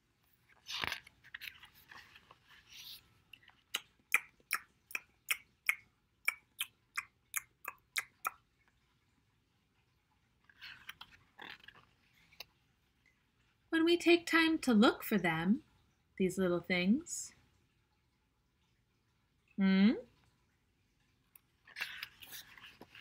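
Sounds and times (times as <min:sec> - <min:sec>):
page turning: 0:00.4 - 0:03.5, 0:10.5 - 0:12.6, 0:21.7 - 0:23.0
mouth chewing noises: 0:03.4 - 0:08.4.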